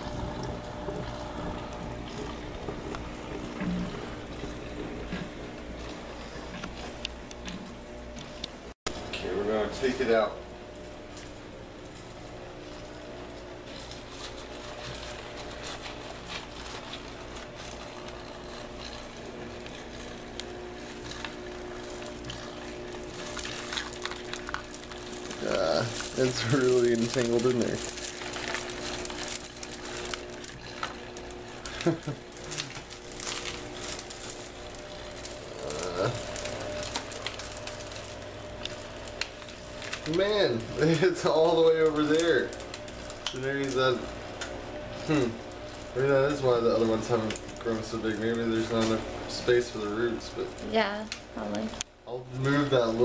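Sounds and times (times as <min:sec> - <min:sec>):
pump hum: 0:00.0 - 0:53.0
pebbles clicking and rattling: 0:23.0 - 0:31.0.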